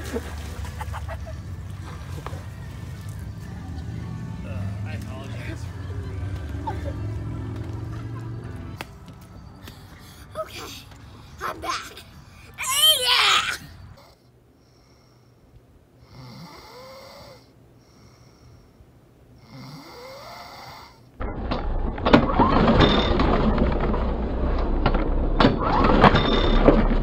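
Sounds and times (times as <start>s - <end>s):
person snoring: 16.0s - 18.4s, 19.4s - 21.1s.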